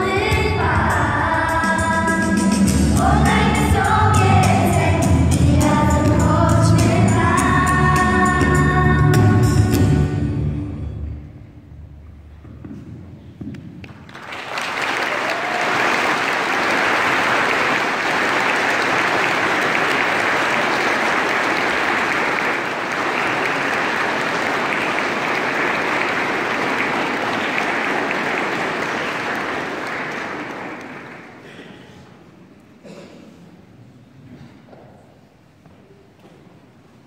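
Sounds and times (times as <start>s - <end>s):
audience applauding: 13.8s - 31.7s.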